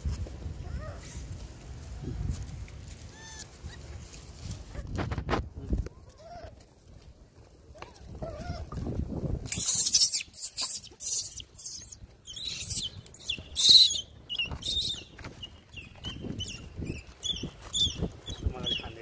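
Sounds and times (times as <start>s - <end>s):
high chirps: 9.5s - 19.0s.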